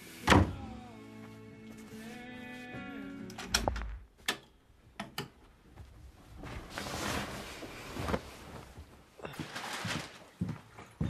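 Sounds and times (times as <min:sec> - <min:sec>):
bedding rustling: 0:05.4 - 0:11.0.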